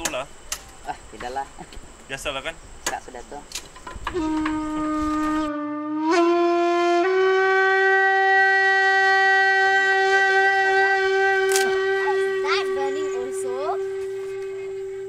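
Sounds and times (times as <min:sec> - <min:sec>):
wind instrument long notes: 0:04.1 - 0:15.0.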